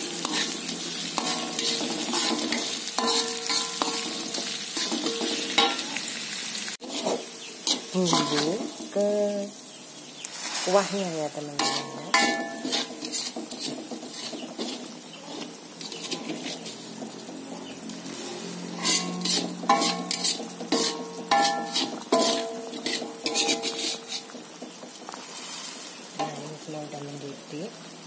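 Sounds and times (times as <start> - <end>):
soup bubbling and hissing: 0.0 - 28.0
metal spoon clinking against pan: 0.2 - 5.9, 6.9 - 8.8, 11.6 - 14.8, 18.8 - 24.4.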